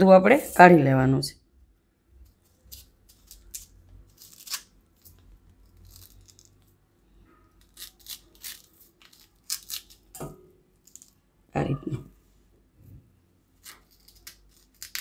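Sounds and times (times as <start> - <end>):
knife scraping fruit pulp: 2.6 - 6.6, 7.5 - 10.2, 13.6 - 15.0.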